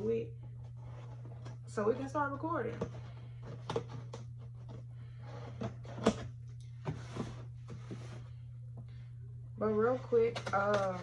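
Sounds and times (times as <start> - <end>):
cardboard scraping rustle: 6.9 - 8.4.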